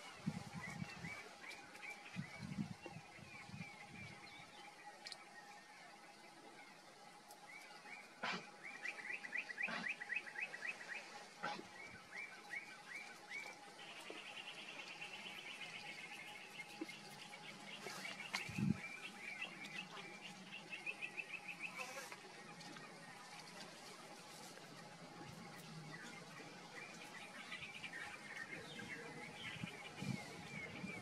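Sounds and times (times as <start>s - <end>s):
small birds chirping: 6.6s - 24.0s, 24.8s - 31.0s.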